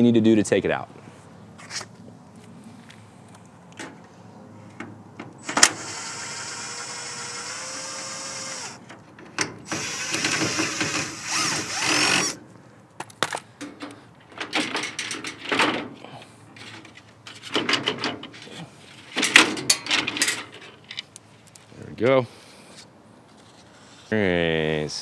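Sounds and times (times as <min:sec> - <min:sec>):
cordless drill whirring: 0:05.4 - 0:08.8, 0:09.7 - 0:12.4.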